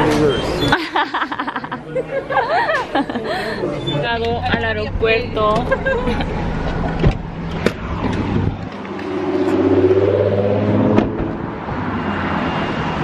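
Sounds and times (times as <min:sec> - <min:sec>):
road noise: 0:00.0 - 0:13.0
car engine: 0:04.0 - 0:13.0.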